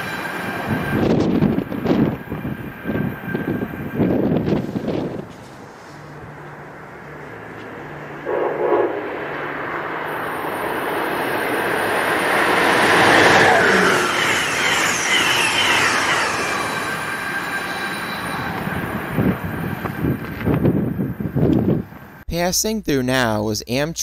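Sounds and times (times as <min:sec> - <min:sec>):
high whine from wheels: 0:00.0 - 0:22.2
train rushing past: 0:00.0 - 0:22.2.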